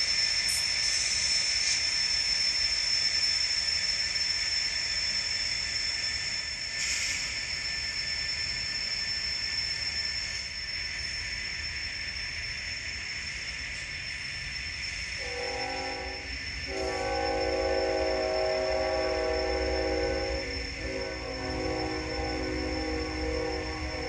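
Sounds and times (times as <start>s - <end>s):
thin high whine: 0.0s - 24.0s
train rolling noise: 0.0s - 24.0s
locomotive horn: 15.2s - 24.0s.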